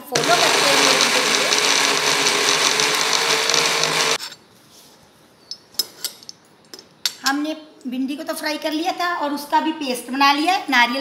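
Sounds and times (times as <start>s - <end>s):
mixer grinder running: 0.0s - 4.2s.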